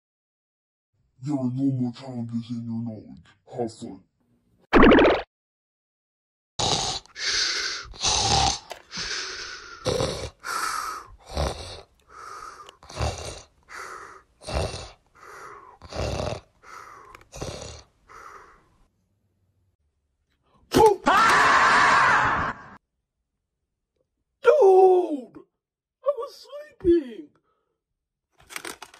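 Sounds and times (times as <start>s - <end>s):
person snoring: 6.6s - 18.7s.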